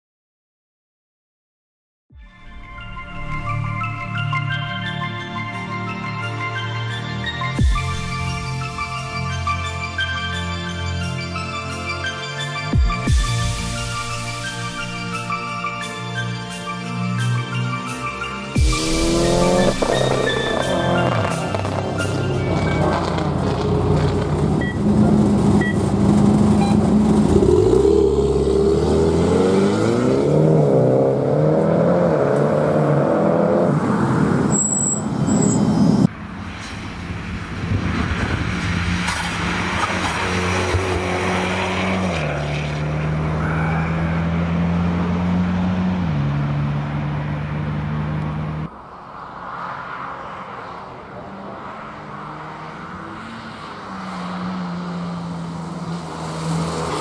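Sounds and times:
race car engine revving: 18.6 - 34.5, 37.8 - 48.7.

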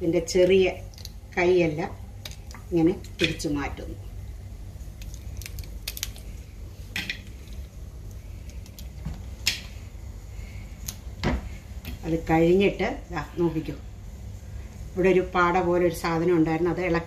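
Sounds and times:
steady low hum: 0.0 - 17.0
crab shell cracking: 0.9 - 1.2, 4.9 - 6.4, 7.2 - 9.6.

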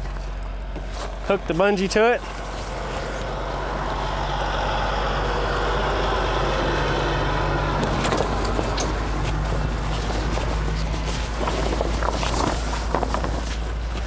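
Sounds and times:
vehicle engine running: 2.3 - 14.0
tarp rustling and snapping: 7.8 - 14.0.

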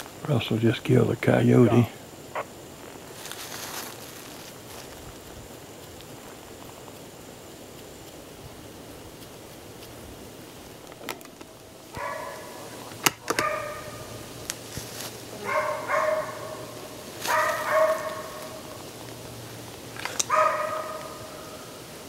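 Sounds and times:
distant hound baying: 1.6 - 2.5, 11.9 - 14.2, 15.4 - 18.8, 20.2 - 21.8.

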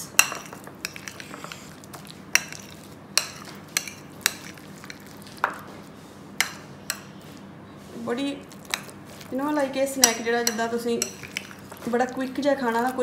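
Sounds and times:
wet mixing noise: 0.1 - 13.0
spoon clinking on bowl: 10.0 - 11.6.

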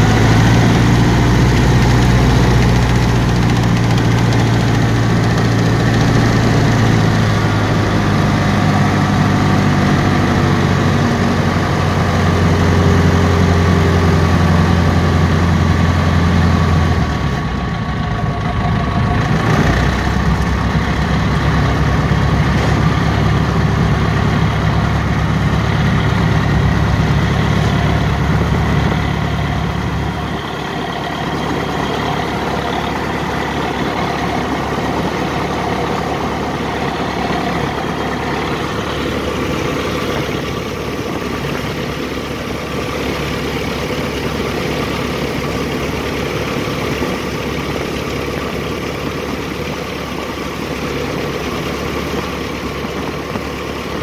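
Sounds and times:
piston engine and propeller: 0.0 - 54.0.

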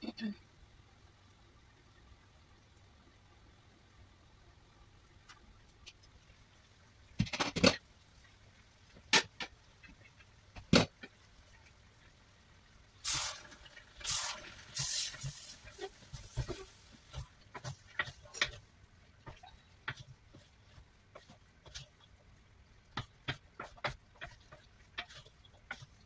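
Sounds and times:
spatula scraping in a wok: 13.1 - 18.6, 23.2 - 26.0.

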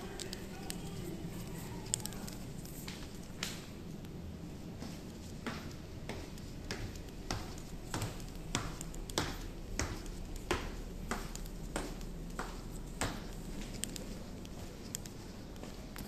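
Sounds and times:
footsteps on marble floor: 0.0 - 16.0
steady low hum: 0.0 - 16.0
footsteps on stone stairs: 4.7 - 14.7.

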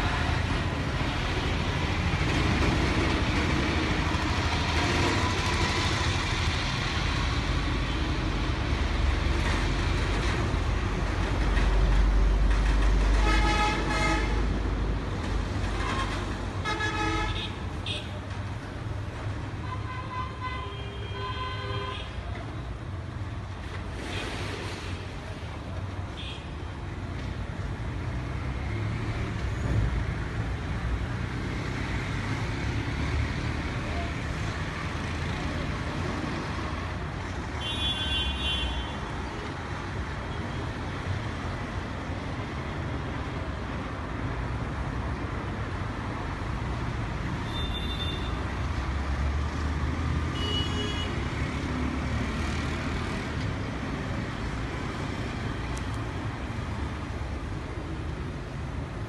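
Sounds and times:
traffic rumble: 0.0 - 59.0
vehicle horns: 13.2 - 14.4, 15.8 - 18.2, 37.6 - 39.0, 47.4 - 48.4, 50.3 - 51.2.

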